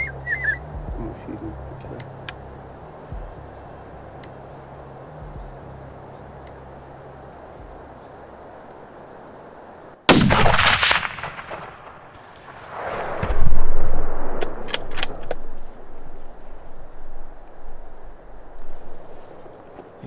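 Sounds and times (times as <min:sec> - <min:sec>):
sharp clicks: 0:02.0 - 0:02.4, 0:10.3 - 0:15.8
rifle shot echoing: 0:10.1 - 0:18.0
loud rumble: 0:10.2 - 0:19.0.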